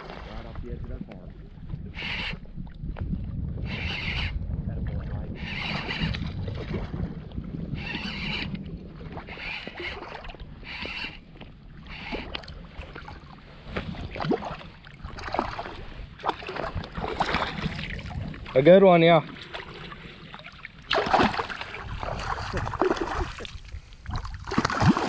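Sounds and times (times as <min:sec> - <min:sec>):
low wind rumble: 0:00.0 - 0:25.0
water sloshing and lapping: 0:00.0 - 0:25.0.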